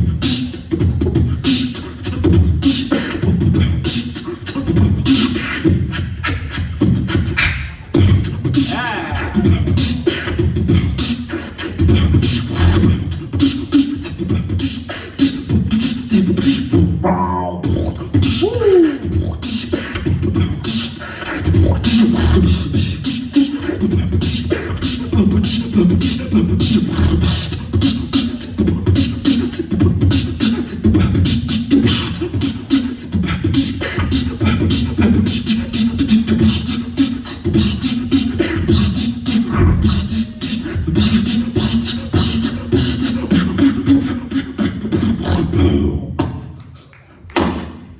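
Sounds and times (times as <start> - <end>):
person beatboxing: 0.0 - 47.9
falling vocal swoop: 39.4 - 40.4.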